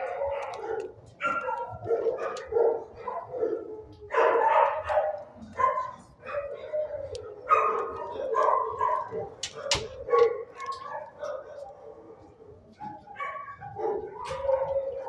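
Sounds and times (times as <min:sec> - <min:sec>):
dogs barking: 0:00.0 - 0:15.0.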